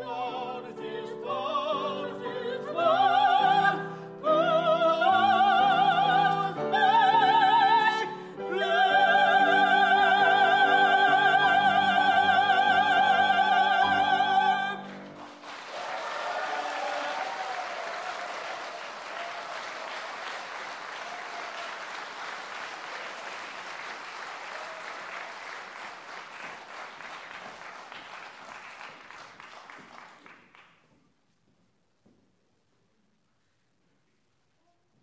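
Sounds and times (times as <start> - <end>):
audience applauding: 14.3 - 30.8.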